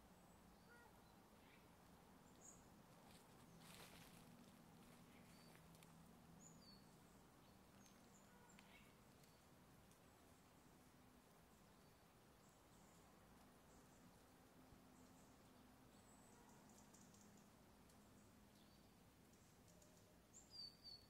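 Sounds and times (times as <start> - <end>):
faint bird chirps: 0.5 - 2.6, 4.8 - 9.5, 14.9 - 21.0
faint rustle: 0.6 - 18.6.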